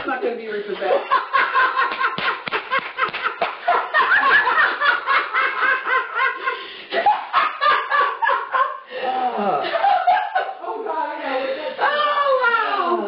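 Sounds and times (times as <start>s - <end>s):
people laughing: 0.7s - 10.8s.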